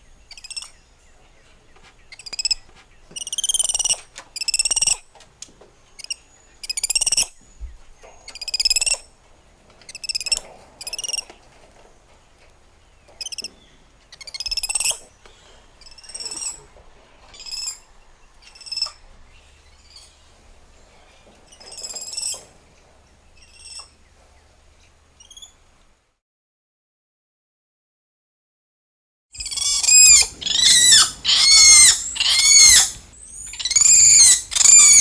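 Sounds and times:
monkeys squealing calls: 14.2s - 15.0s, 15.8s - 16.6s, 17.3s - 17.8s, 18.4s - 19.0s, 29.4s - 35.0s.

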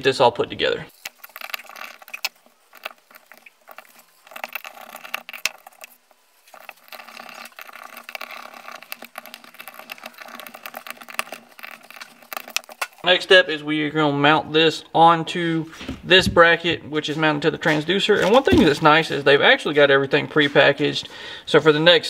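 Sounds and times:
small screws clicking: 0.9s - 13.0s.

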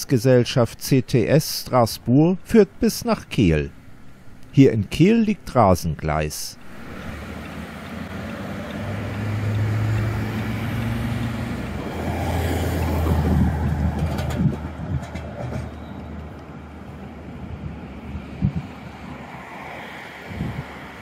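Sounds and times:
tram drive humming: 0.7s - 21.0s
tram rolling noise: 6.6s - 21.0s.

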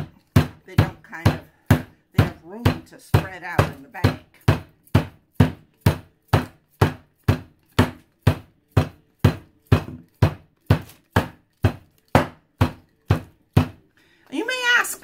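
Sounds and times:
rolling pin pounding meat in bag: 0.0s - 13.9s.

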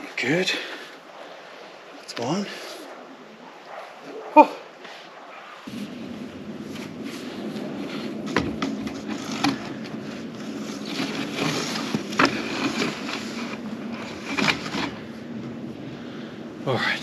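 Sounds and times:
plastic pipe scraping: 6.6s - 15.3s.

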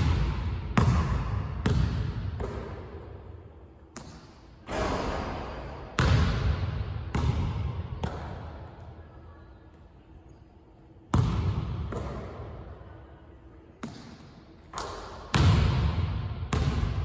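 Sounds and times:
basketball bouncing on wooden floor: 0.0s - 2.9s.

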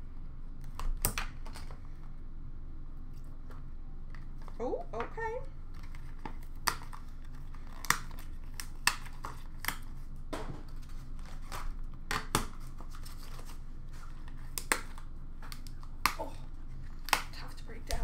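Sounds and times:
wrapper and cardboard tearing: 5.7s - 10.0s, 10.7s - 17.5s.

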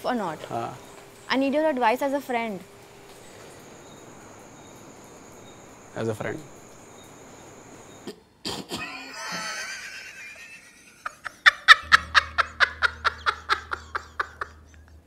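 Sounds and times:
man laughing hard: 8.7s - 15.0s.

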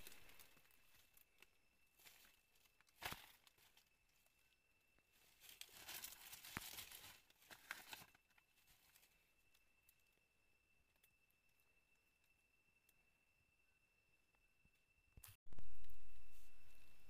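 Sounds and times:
dry leaves rustling: 0.0s - 4.3s, 5.1s - 9.2s.

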